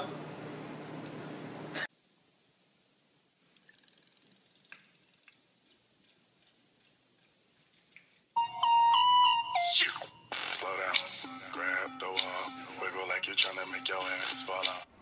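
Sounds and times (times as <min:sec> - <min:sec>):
loud electronic tune: 0:09.4 - 0:14.8.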